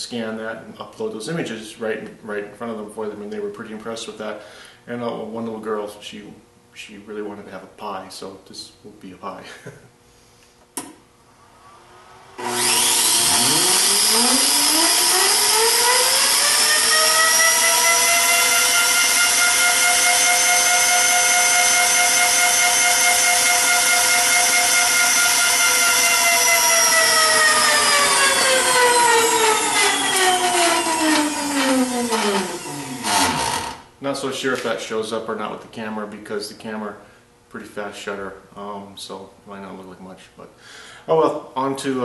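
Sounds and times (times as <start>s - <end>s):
electric motor whining: 11.8s - 33.9s.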